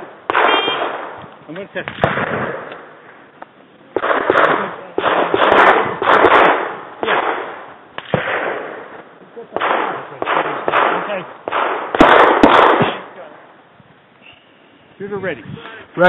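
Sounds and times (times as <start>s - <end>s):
pistol shots echoing: 0.0s - 1.2s, 1.8s - 3.0s, 3.9s - 13.3s.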